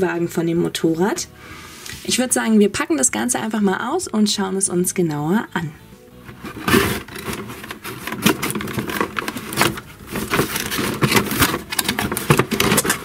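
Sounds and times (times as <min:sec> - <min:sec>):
packaging rustling and scraping: 0:06.2 - 0:13.0.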